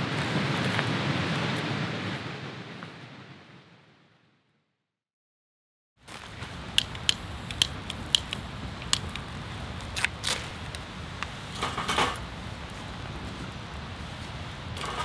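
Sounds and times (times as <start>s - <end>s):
low fire rumble: 0.0s - 4.1s, 6.1s - 15.0s
firewood crackling and popping: 6.1s - 15.0s.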